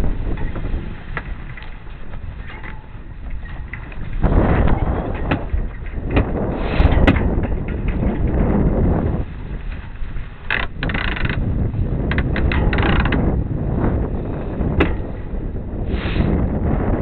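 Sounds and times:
sailcloth flapping: 0.0 - 17.0
wind buffeting microphone: 0.0 - 17.0.

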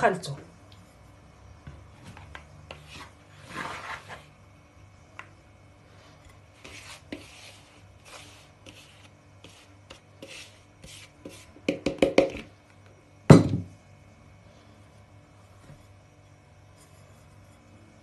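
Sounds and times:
flour pouring and scraping: 2.7 - 4.3, 6.5 - 11.5
plastic bowl set down thud: 13.3 - 13.7.

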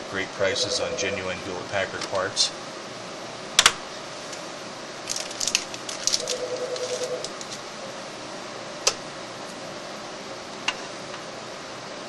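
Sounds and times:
handling noise: 5.0 - 7.7.

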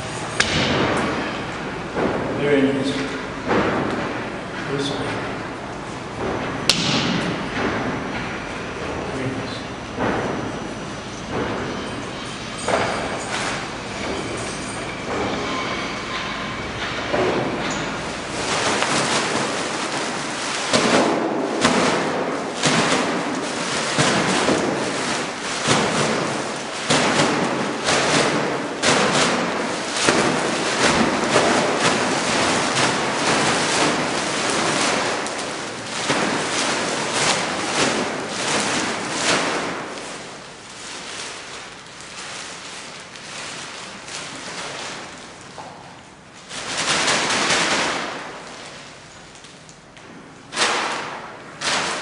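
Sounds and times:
plastic bag crinkling: 17.5 - 52.0.

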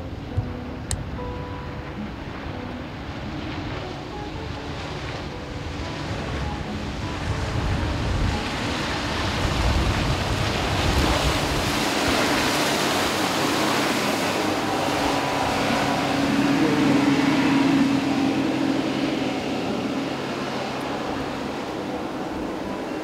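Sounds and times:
outboard motors droning: 0.0 - 23.0
wind on microphone: 0.0 - 23.0
rush of spray: 6.0 - 23.0.

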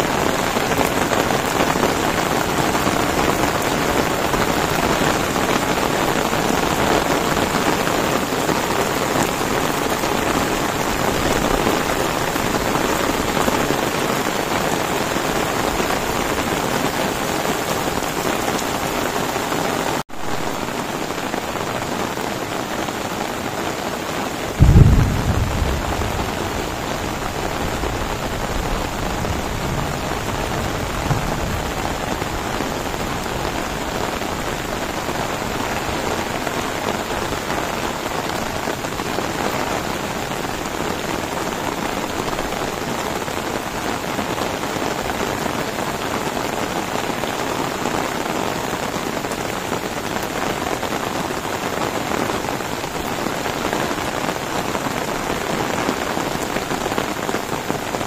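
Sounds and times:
heavy rain falling: 0.0 - 58.0
loud deep rumble: 24.6 - 32.6.

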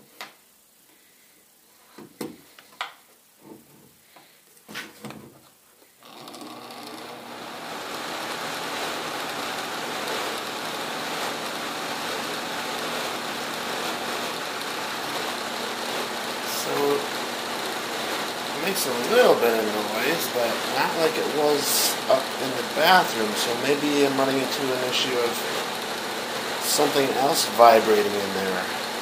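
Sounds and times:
fan motor spinning: 6.0 - 29.0.

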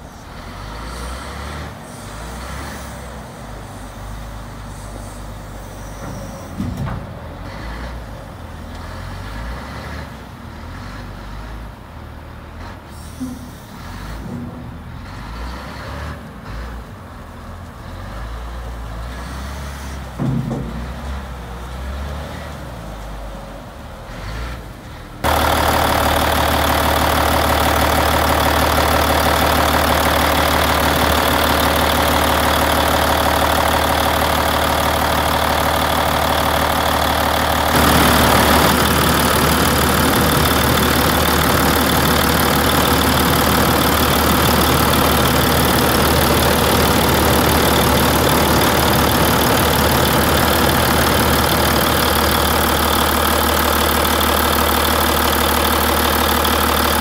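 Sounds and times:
diesel engine idling: 16.4 - 57.0.

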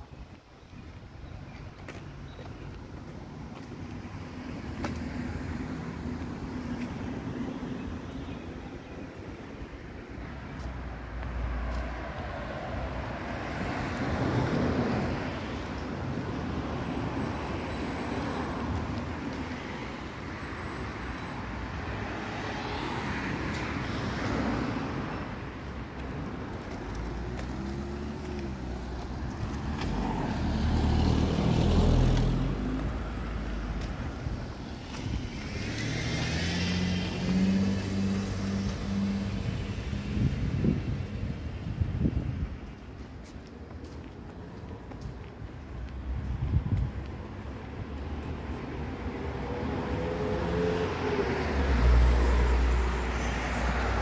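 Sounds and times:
cars driving past: 10.3 - 42.4, 44.1 - 54.0.

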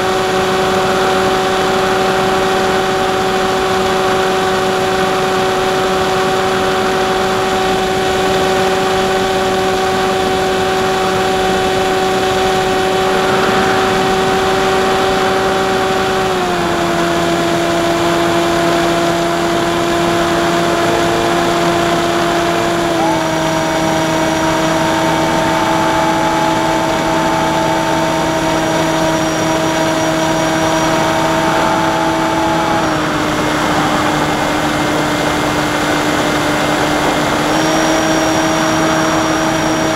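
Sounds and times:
electric motor whine: 0.0 - 39.9
rushing airflow: 10.2 - 39.9.

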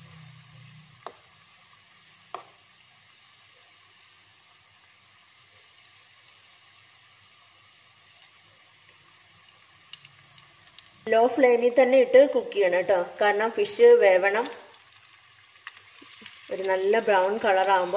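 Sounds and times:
fish frying in oil: 0.0 - 17.9.

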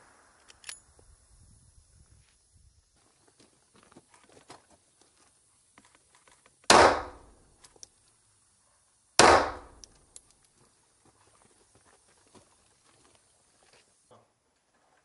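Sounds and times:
pistol shots: 6.7 - 7.3, 9.2 - 9.8.

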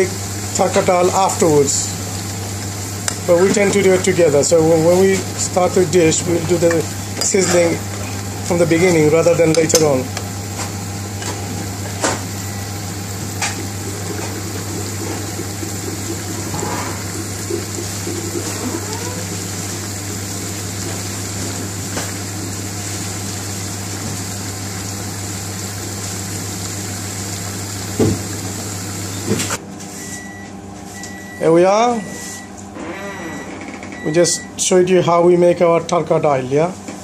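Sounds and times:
pan bubbling at a boil: 0.0 - 29.6.

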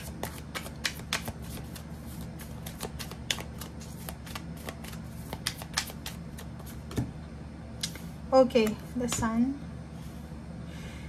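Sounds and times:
cards being shuffled: 0.0 - 7.0.

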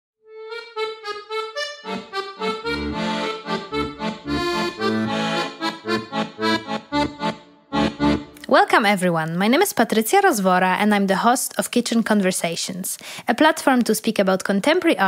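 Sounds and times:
instrumental intro music: 0.2 - 8.5.

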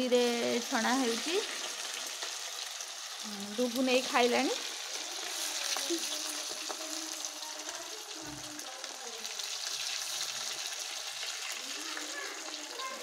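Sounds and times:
food deep-frying in oil: 0.0 - 13.0.

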